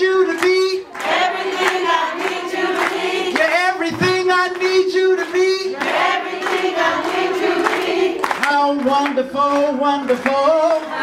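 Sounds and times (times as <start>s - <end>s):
group singing a worship song: 0.8s - 3.8s, 5.7s - 11.0s.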